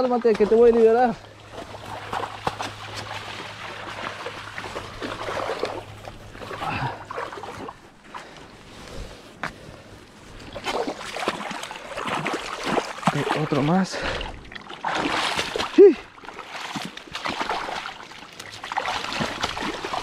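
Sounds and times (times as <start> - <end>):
fish thrashing and splashing: 0.1 - 8.4, 10.4 - 20.0.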